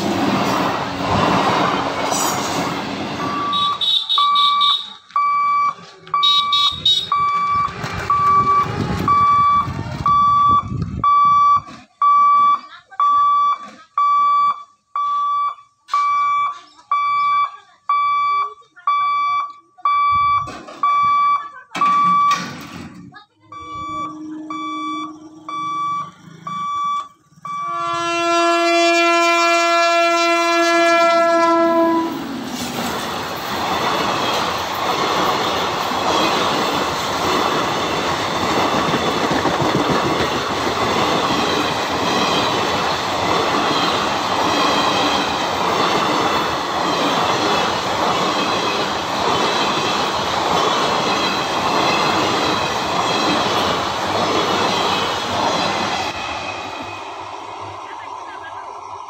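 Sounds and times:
electric train horn: 27.6 - 32.3
train wheels clattering on rails: 32.4 - 56.6.

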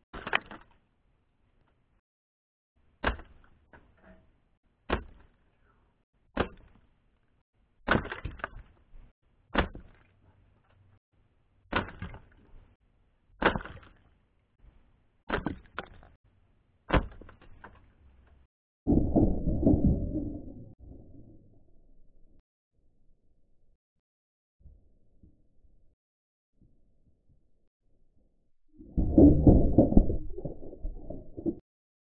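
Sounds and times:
splintering wood and falling debris: 0.1 - 0.8, 7.8 - 8.8, 9.5 - 10.2, 11.7 - 12.6, 13.4 - 14.1, 15.3 - 16.2, 16.9 - 18.0.

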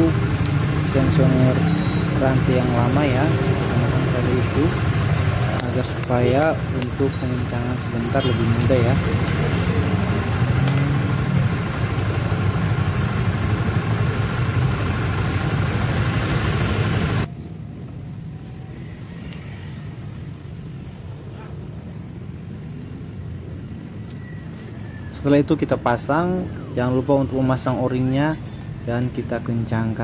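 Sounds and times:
single-cylinder engine idling: 0.0 - 17.3.

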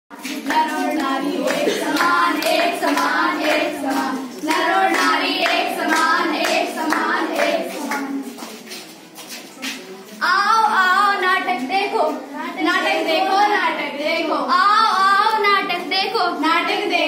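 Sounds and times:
girls singing a chant: 0.1 - 8.4, 10.2 - 17.0
hands clapping: 0.1 - 9.8.

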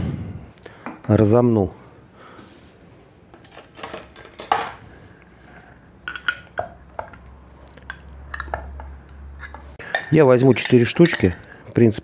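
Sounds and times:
utensils and dishes clinking: 3.4 - 4.9, 6.0 - 11.5.

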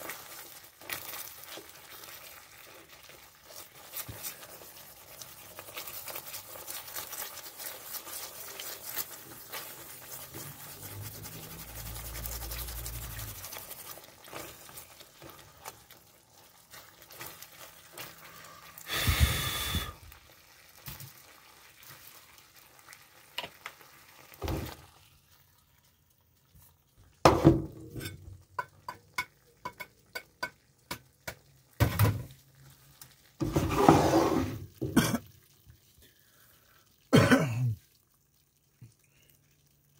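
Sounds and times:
sauce simmering and sizzling: 0.0 - 39.9.

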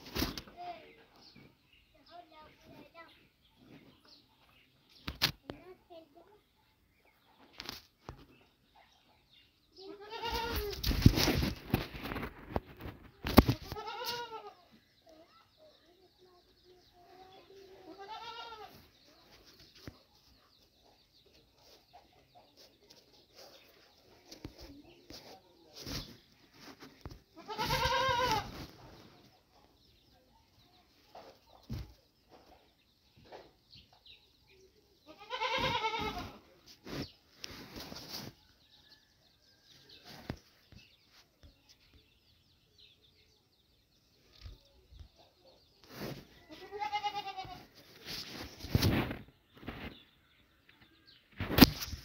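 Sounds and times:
goat bleating: 9.9 - 10.7, 13.7 - 14.6, 17.9 - 18.7, 27.4 - 28.5, 35.1 - 36.4, 46.5 - 47.6.

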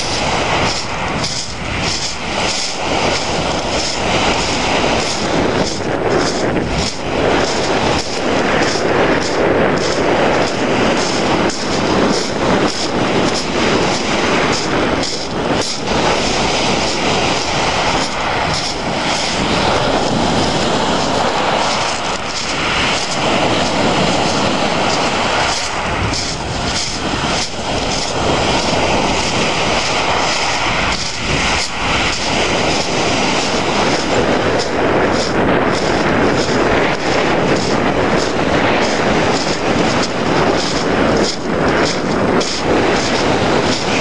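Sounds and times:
waves washing on pebble shore: 0.0 - 44.0
wind buffeting microphone: 0.0 - 44.0.

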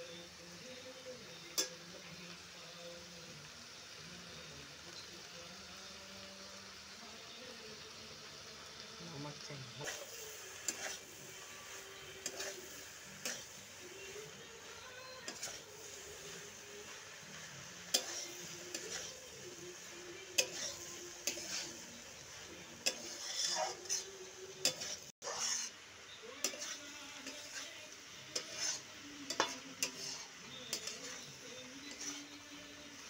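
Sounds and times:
frying sizzle: 0.0 - 33.0
spatula scraping metal pan: 9.8 - 25.8, 26.4 - 32.5.

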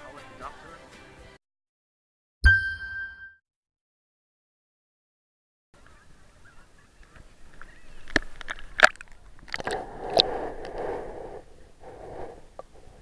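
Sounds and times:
seawater splashing against camera: 7.5 - 11.1.

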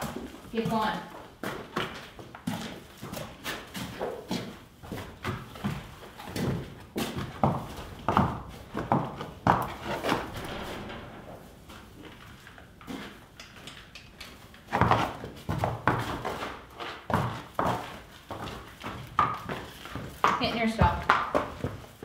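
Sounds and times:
horse hooves thudding on dirt: 0.0 - 11.2, 12.9 - 22.0.

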